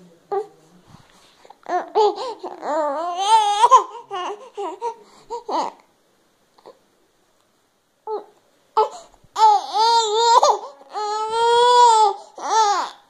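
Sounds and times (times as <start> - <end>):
baby babbling: 1.6 - 5.8, 8.1 - 13.0.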